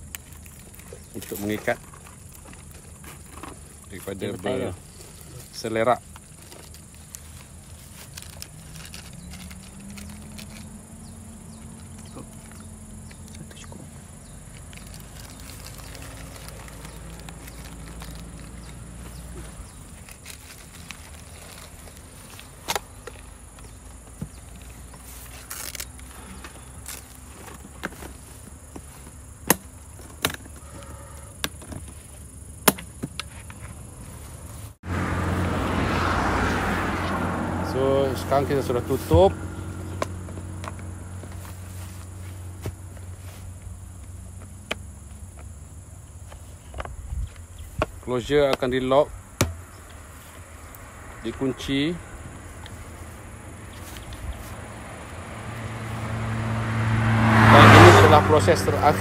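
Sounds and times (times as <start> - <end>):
passing vehicle rush: 3.7 - 29.9, 33.8 - 46.2, 48.0 - 59.0
plastic clicks and rustles: 6.0 - 10.8, 14.5 - 30.8.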